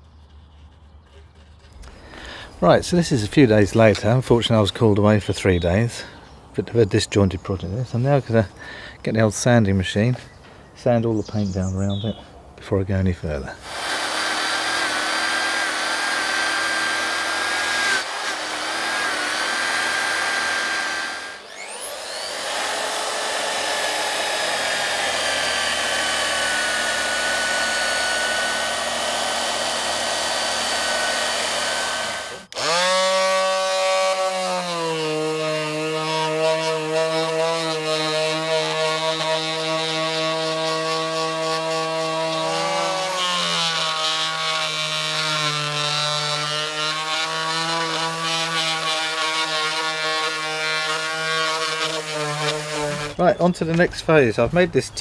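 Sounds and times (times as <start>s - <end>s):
detail sander humming: 13.6s - 53.2s.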